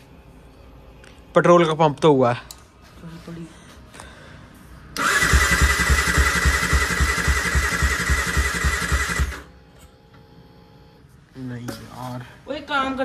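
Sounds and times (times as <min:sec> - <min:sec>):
engine starter whirring: 0:04.9 - 0:09.5.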